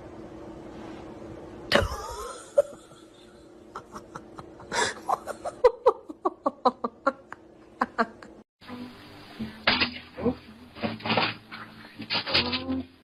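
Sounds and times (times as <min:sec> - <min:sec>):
person laughing: 0:01.7 - 0:08.4.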